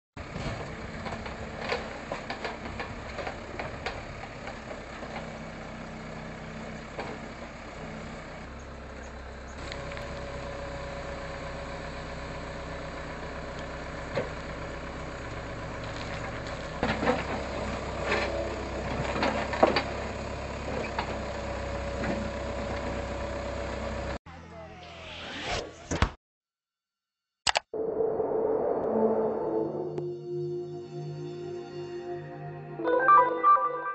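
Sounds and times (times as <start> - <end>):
diesel engine running: 0.2 - 25.5.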